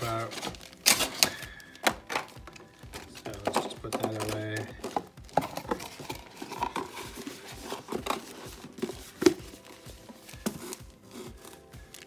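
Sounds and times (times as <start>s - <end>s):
cardboard box taps and rustles: 1.8s - 12.0s.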